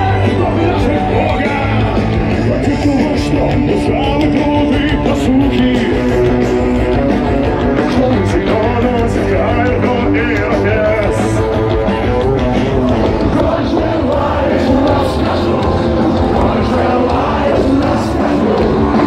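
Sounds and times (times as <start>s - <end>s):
live rock band playing: 0.0s - 19.0s
person singing: 12.4s - 19.0s.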